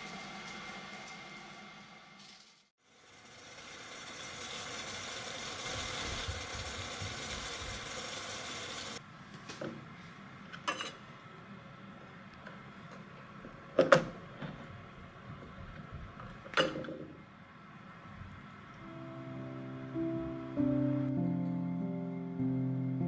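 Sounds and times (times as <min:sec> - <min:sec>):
steam hissing and water boiling: 0:00.0 - 0:09.0.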